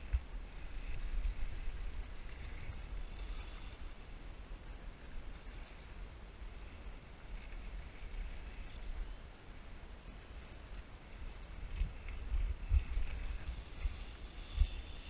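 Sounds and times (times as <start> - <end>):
wind on microphone: 0.0 - 9.1, 10.1 - 15.0
river current rumble: 0.0 - 15.0
fishing reel drag buzzing: 0.4 - 4.0, 7.2 - 9.1, 10.0 - 10.8, 12.8 - 15.0.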